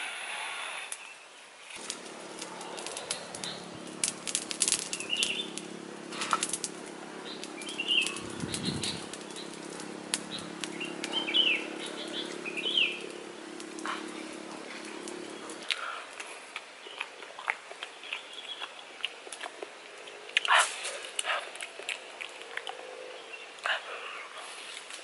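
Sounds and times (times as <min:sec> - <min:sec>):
charred food crackling: 0:00.9 - 0:25.0
steady low hum: 0:01.7 - 0:16.6
high bird chirps: 0:05.0 - 0:05.6, 0:07.2 - 0:09.6, 0:10.3 - 0:13.2.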